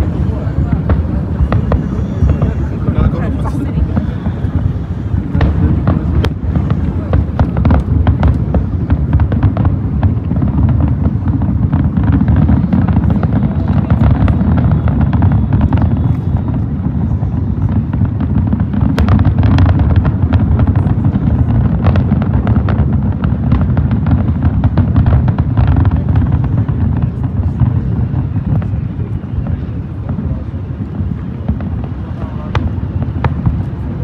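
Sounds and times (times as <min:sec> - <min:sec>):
fireworks booming: 0:00.0 - 0:34.0
fireworks sharp cracks: 0:00.0 - 0:34.0.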